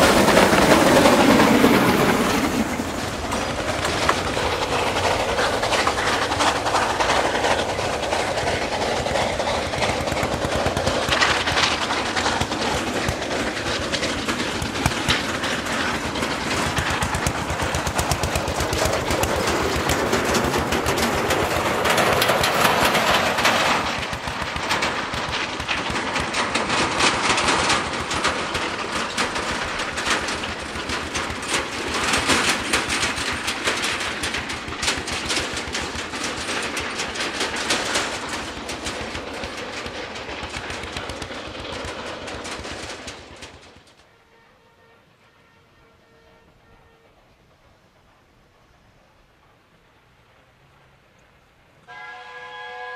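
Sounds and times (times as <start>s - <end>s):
tractor diesel engine rattling: 0.0s - 44.0s
wagons rolling along track: 0.0s - 52.9s.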